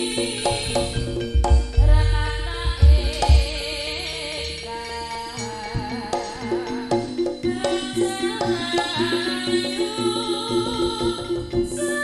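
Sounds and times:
heavy low drum strokes: 1.0s - 4.0s.

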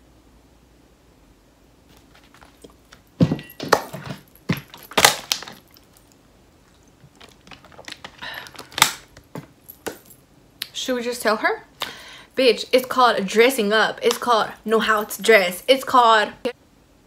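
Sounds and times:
cosmetics being handled knocks: 3.2s - 5.6s.

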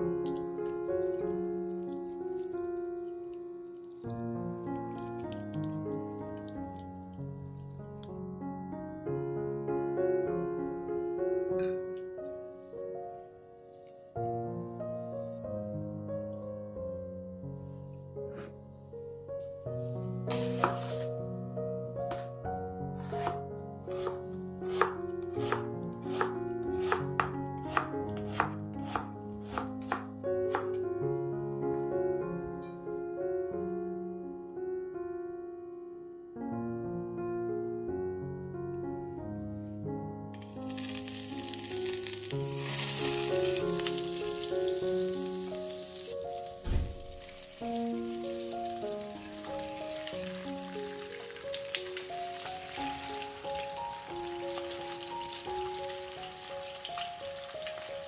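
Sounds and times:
background piano music: 0.0s - 58.0s
knife chopping on wooden board: 20.3s - 21.0s, 23.0s - 23.4s, 24.0s - 30.8s
butter sizzling in a frying pan: 40.4s - 58.0s
dull thump: 46.6s - 47.2s.

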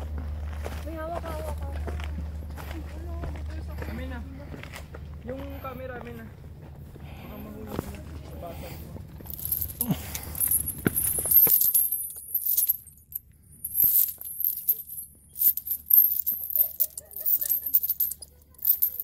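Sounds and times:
metal chain clinking and jangling: 9.2s - 19.0s.

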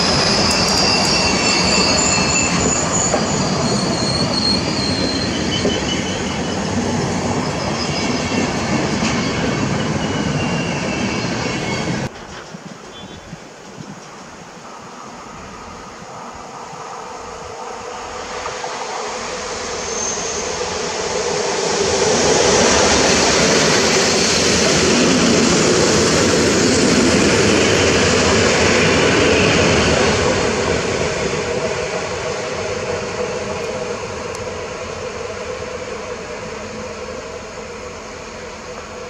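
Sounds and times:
passenger train passing: 0.0s - 39.0s.

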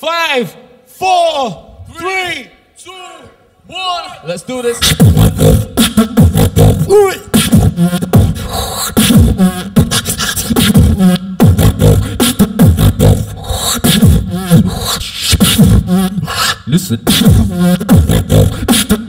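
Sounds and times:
person beatboxing: 4.7s - 19.0s.

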